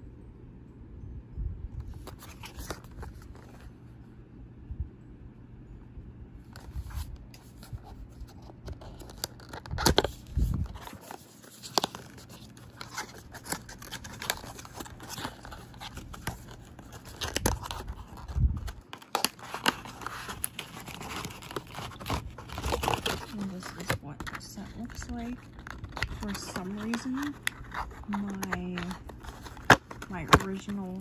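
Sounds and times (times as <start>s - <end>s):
cardboard scraping and rustling: 6.6s - 31.0s.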